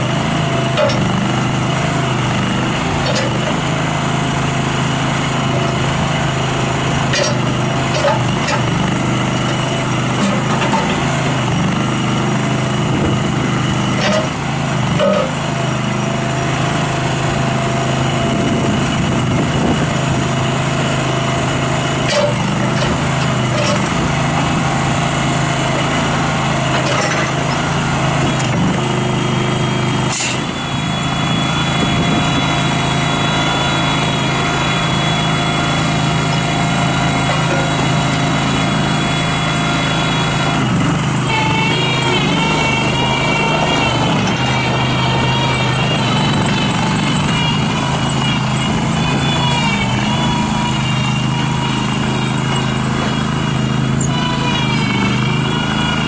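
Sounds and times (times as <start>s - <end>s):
backhoe engine running: 0.0s - 56.0s.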